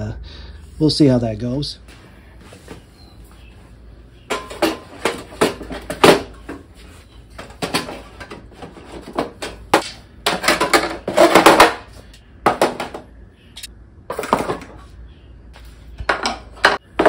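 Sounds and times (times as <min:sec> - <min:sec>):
metal and plastic clattering on wood: 0:04.3 - 0:06.7, 0:07.3 - 0:13.1, 0:14.1 - 0:14.8, 0:16.0 - 0:17.0.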